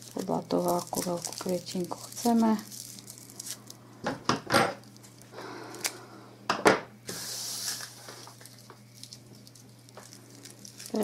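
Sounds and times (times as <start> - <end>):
straw rustling: 0.0 - 3.8, 7.4 - 11.0
knocks on wooden tabletop: 6.5 - 6.9.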